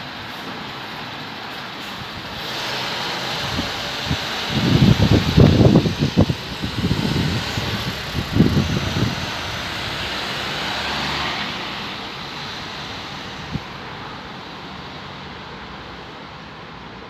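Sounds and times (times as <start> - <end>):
diesel truck engine pulling away: 0.0 - 15.9
wind buffeting microphone: 1.8 - 12.0, 12.6 - 13.9.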